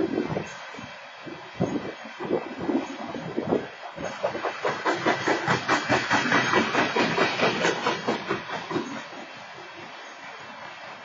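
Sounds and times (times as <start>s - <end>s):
wheel and rail hiss: 0.0s - 11.0s
train wheels clacking over rail joints: 2.4s - 10.0s.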